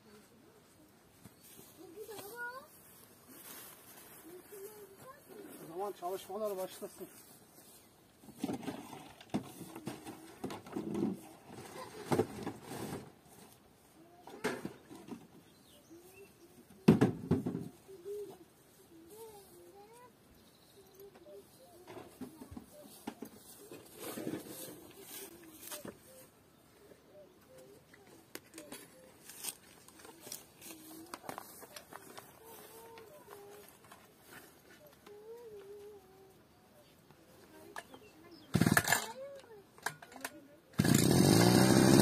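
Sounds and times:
bird cooing: 17.8s - 19.2s, 25.3s - 29.2s.

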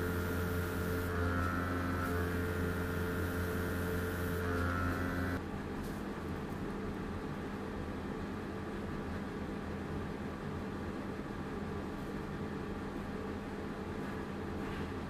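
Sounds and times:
airbrush compressor running: 0.0s - 5.4s.

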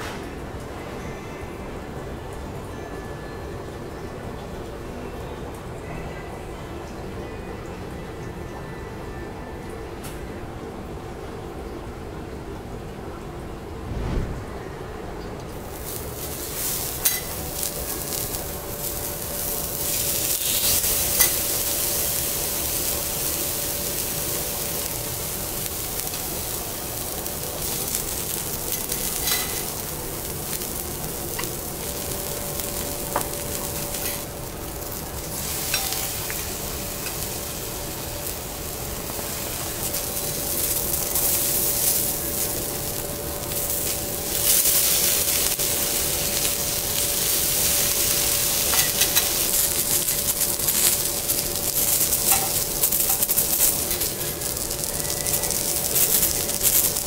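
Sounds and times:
steady hum: 9.0s - 57.0s
steaks sizzling on a griddle: 15.6s - 57.0s
metal spatulas clicking on griddle: 16.6s - 18.3s, 28.8s - 29.6s, 52.2s - 54.6s.

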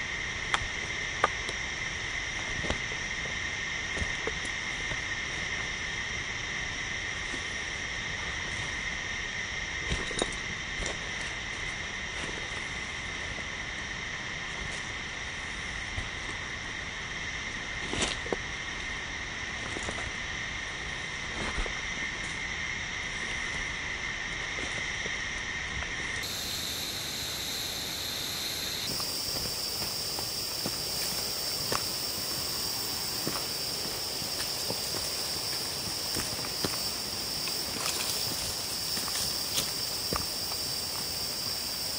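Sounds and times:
insect chorus drone: 0.0s - 41.9s
footsteps on leaf litter: 28.8s - 41.8s.

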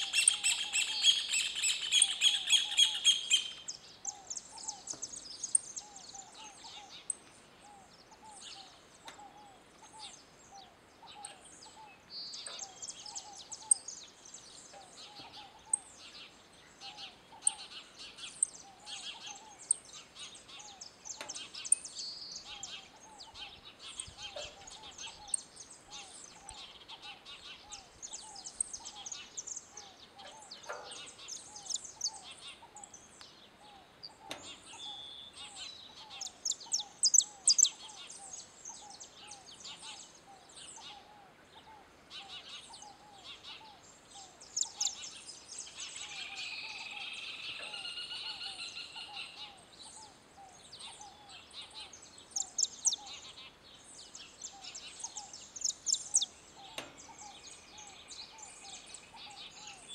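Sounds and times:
finches chirping: 0.0s - 16.2s, 16.8s - 33.1s, 33.7s - 40.0s, 42.1s - 53.5s, 54.1s - 59.9s.

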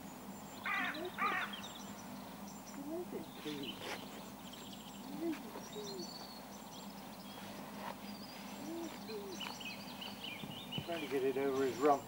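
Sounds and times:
bird cooing: 8.5s - 9.5s.

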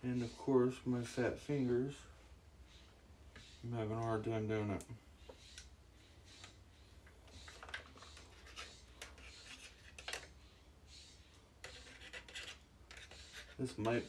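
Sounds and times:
fingers rubbing rubber hose: 11.6s - 14.0s.

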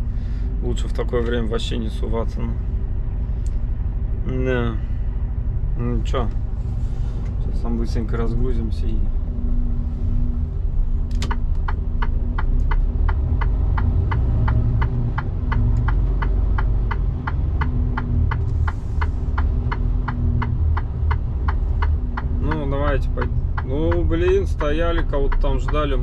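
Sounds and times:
turn signal ticking: 9.4s - 26.0s
truck engine idling: 11.1s - 26.0s.

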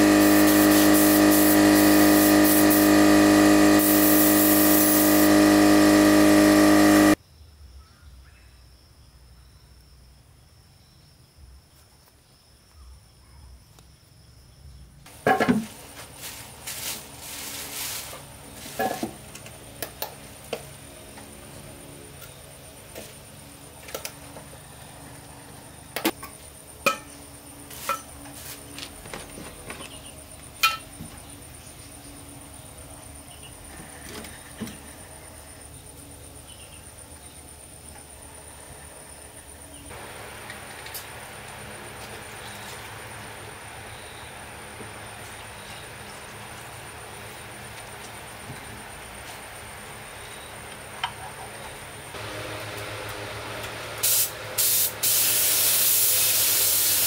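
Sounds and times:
plastic bag rustling: 15.6s - 19.0s.

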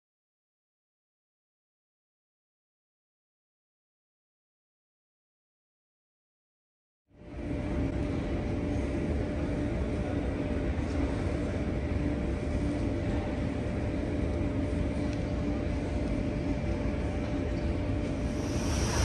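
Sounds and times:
faint steady hum: 7.2s - 19.0s
low rumble: 18.0s - 19.0s.

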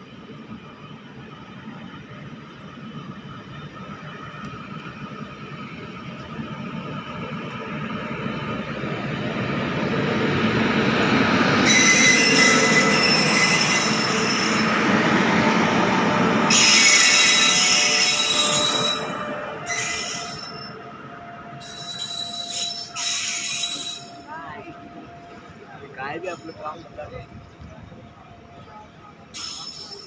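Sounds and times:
train passing rumble: 0.0s - 30.0s
wheel squeal: 11.6s - 14.8s, 16.5s - 20.8s, 21.6s - 24.2s, 29.3s - 30.0s.

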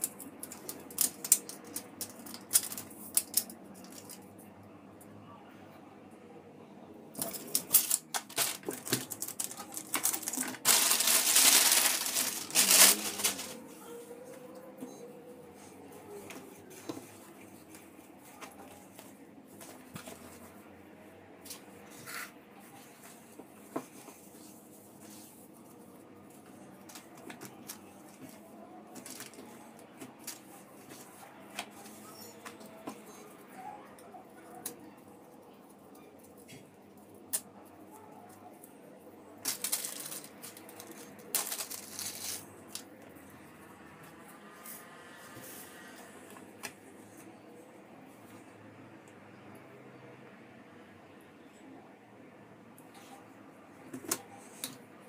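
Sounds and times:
plastic packaging crinkling: 0.0s - 4.2s, 7.2s - 13.6s, 29.0s - 29.5s, 39.4s - 42.8s
fabric rustling: 7.2s - 14.0s.

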